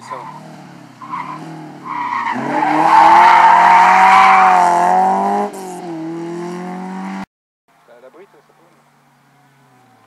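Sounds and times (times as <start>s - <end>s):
rally car engine revving: 0.0s - 7.2s.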